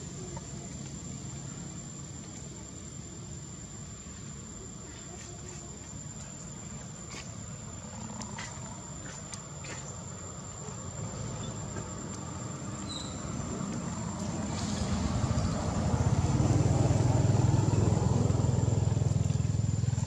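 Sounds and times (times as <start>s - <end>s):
high-pitched insect drone: 10.5s - 20.0s.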